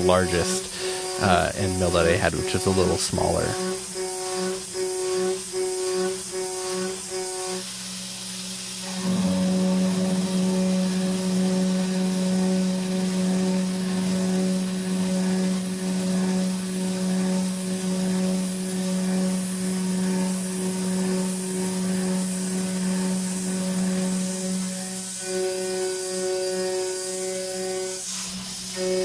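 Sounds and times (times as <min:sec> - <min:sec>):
cnc router spindle humming: 0:00.0 - 0:29.0
faint hiss: 0:00.0 - 0:29.0.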